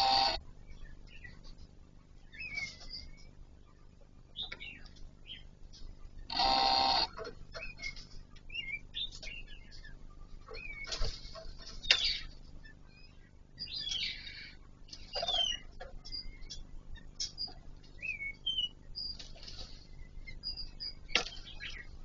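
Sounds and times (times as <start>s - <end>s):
loud buzzing tone: 0.0s - 0.4s, 6.3s - 7.2s.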